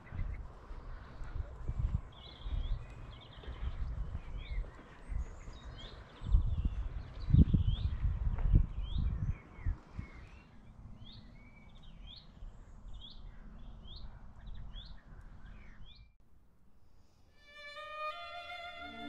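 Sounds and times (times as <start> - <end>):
songbird chirping: 0.0 - 16.2, 17.0 - 19.0
violin music: 17.4 - 19.0.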